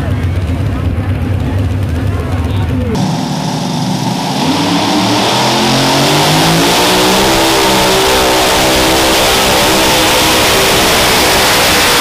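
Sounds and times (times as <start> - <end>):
tractor engines revving: 0.0 - 12.0.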